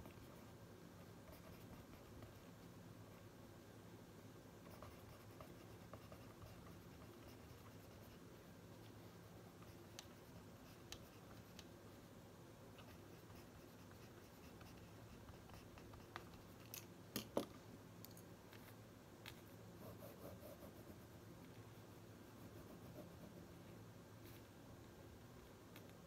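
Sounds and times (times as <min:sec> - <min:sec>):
faint low hum: 0:00.0 - 0:26.0
pen scratching on paper: 0:01.2 - 0:02.5, 0:04.6 - 0:09.0, 0:12.8 - 0:16.6.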